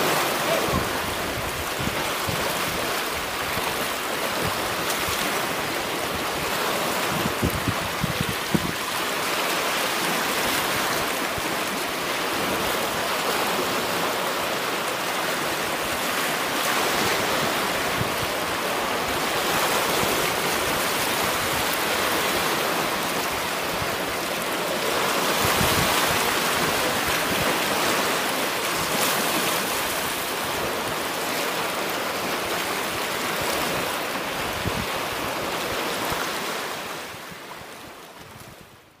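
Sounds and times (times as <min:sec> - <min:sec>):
small waves lapping on rocks: 0:00.0 - 0:38.6.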